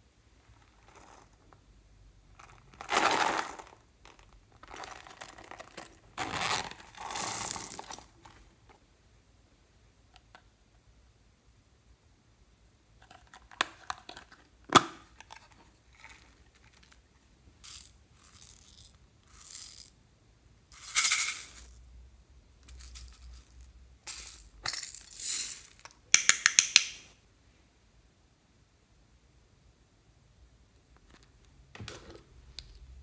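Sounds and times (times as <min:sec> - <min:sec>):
plastic toys clicking and tapping: 0:25.8 - 0:27.0.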